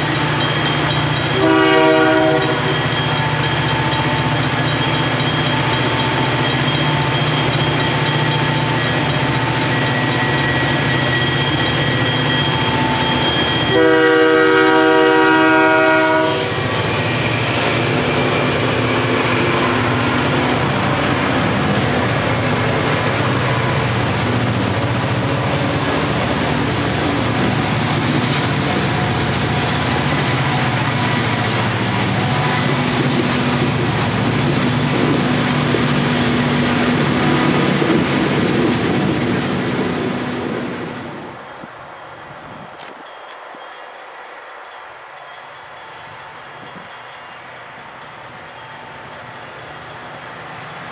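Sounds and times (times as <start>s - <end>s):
freight cars rumbling on rails: 0.0s - 44.8s
diesel locomotive engines droning: 0.0s - 50.9s
train horn blast: 1.4s - 2.8s, 13.7s - 16.6s.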